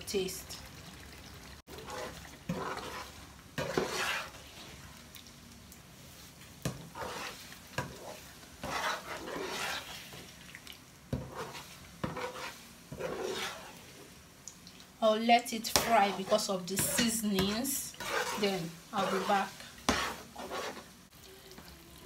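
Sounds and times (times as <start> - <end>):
stew sizzling: 0.0 - 22.0
spoon scraping a frying pan: 1.7 - 4.7, 6.7 - 10.3, 11.1 - 14.1, 15.6 - 21.0.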